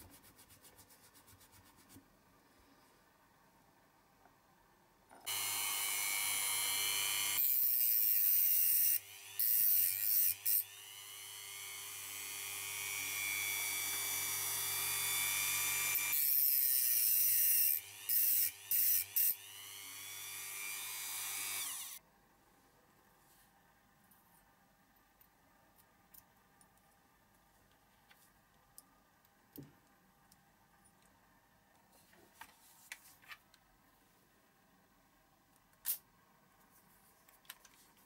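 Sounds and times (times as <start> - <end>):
rotary tool with cut-off disc: 5.3 - 22.0.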